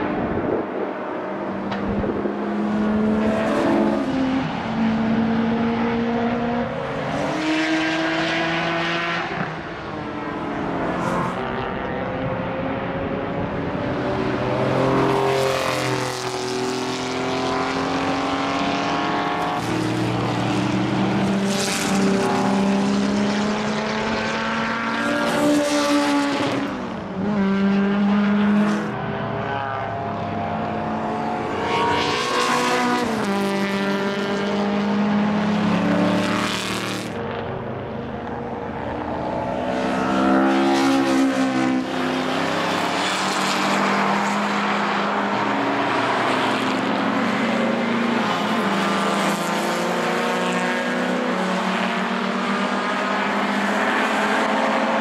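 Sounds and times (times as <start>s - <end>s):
racing cars passing at speed: 0.0s - 55.0s.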